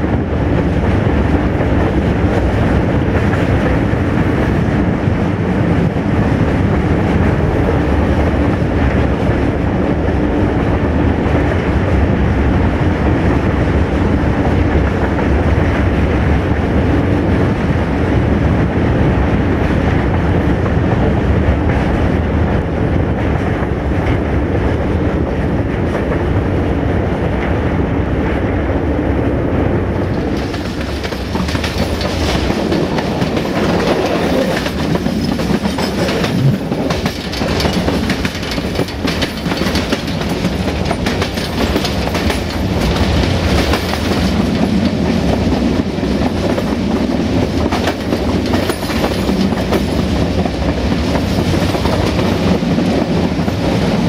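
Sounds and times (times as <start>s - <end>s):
diesel locomotive engine rumble: 0.0s - 54.0s
hissy wheel-on-rail noise: 0.0s - 54.0s
wheels clicking over rail joints: 30.0s - 53.7s.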